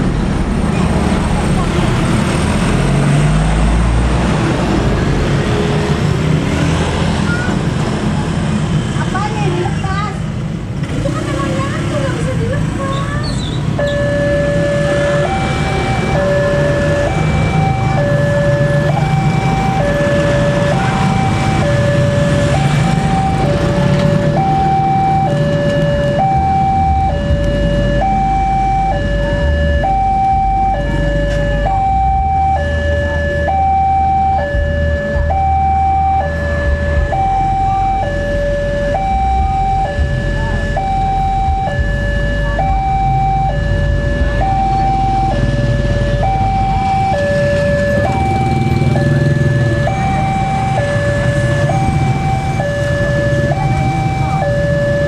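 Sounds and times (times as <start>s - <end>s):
two-tone crossing alarm chime: 13.7s - 55.0s.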